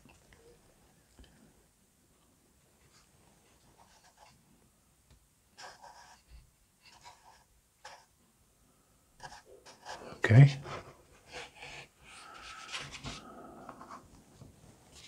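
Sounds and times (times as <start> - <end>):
hands scratching wooden frames: 10.8 - 14.1.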